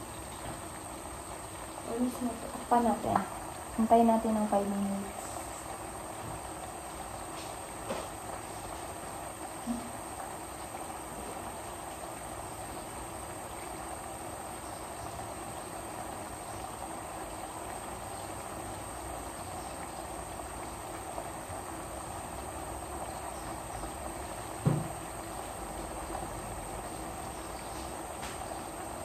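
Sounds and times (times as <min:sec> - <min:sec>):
covered pot simmering hiss: 0:00.0 - 0:29.0
dull thump: 0:24.6 - 0:25.0.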